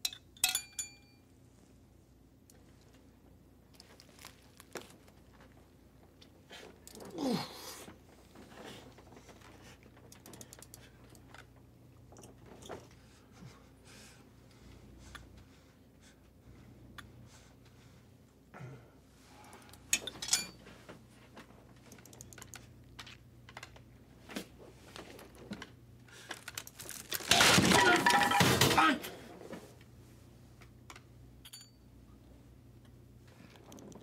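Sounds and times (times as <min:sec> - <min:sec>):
loud vocal outburst: 0:07.0 - 0:07.8, 0:27.5 - 0:29.1.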